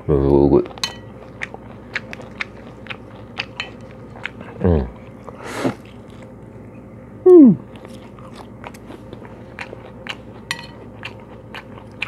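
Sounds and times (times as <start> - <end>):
person humming: 7.2 - 7.7
wet chewing and leafy crunches: 7.7 - 12.0.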